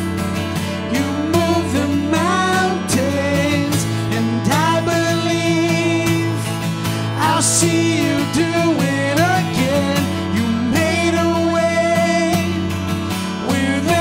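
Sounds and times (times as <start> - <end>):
acoustic guitar: 0.0 - 14.0
man and woman singing: 0.7 - 12.8, 13.4 - 14.0.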